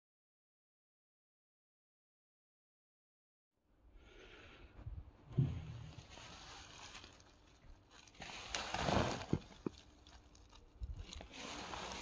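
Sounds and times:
wood chips rustling and crackling: 5.4s - 12.0s
twigs clicking: 5.9s - 12.0s.

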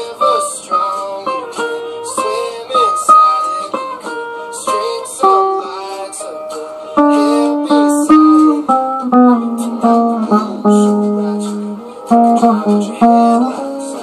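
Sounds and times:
guitar plucked notes: 0.0s - 14.0s.

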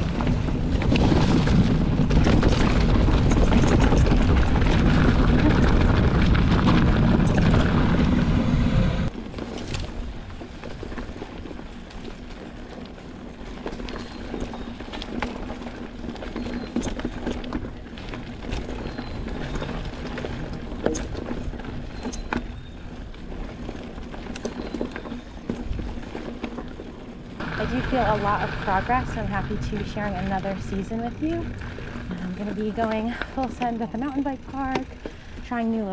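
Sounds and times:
heavy low rumble: 0.0s - 9.1s, 27.3s - 35.9s
bike rattles and clicks: 0.0s - 35.9s
bike tyres on dirt: 0.0s - 35.9s.

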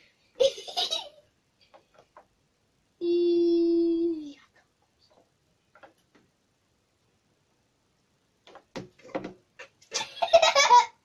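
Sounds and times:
short knocks and clatters: 8.4s - 9.4s.

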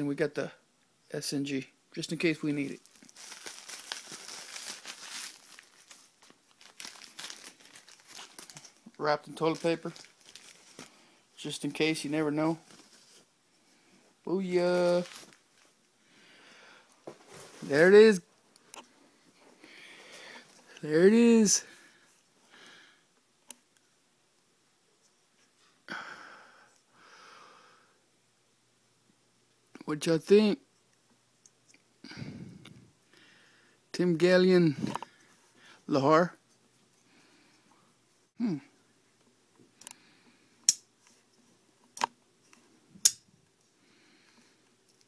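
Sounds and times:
man breathing softly: 16.0s - 17.1s, 19.4s - 20.8s, 25.9s - 28.0s, 32.0s - 33.9s, 37.0s - 38.0s, 39.8s - 40.6s, 43.7s - 44.8s.

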